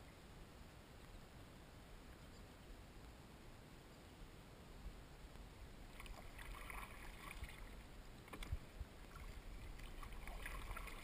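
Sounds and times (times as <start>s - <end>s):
kayak paddle splashing: 5.9s - 11.0s.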